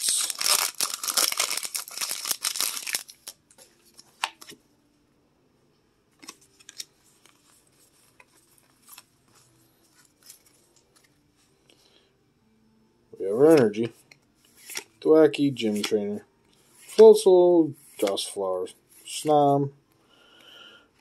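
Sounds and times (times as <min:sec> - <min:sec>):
foil wrapper tearing and crinkling: 0:00.0 - 0:03.4
cards ticking and rustling: 0:15.6 - 0:16.0.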